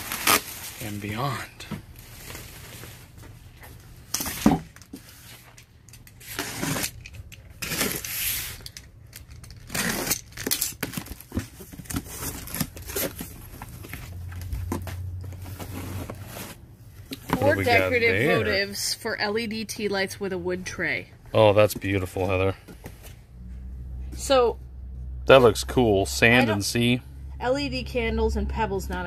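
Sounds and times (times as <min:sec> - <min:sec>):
packing tape tearing: 0:00.0 - 0:00.7, 0:05.9 - 0:13.3.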